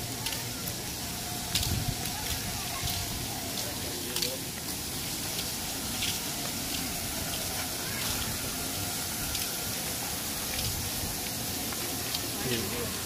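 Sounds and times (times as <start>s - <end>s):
water spraying and splashing: 0.0s - 13.0s.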